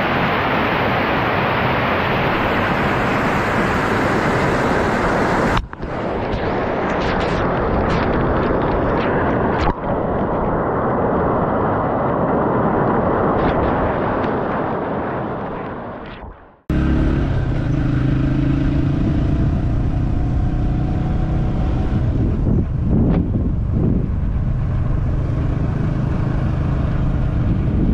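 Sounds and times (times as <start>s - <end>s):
waterfall rushing: 0.0s - 5.6s
motorcycle engine running: 16.7s - 22.9s.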